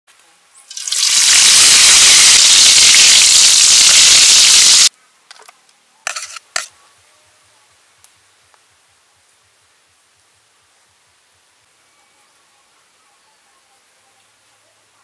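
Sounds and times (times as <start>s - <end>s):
hot oil sizzling: 0.6s - 4.9s, 6.1s - 6.7s.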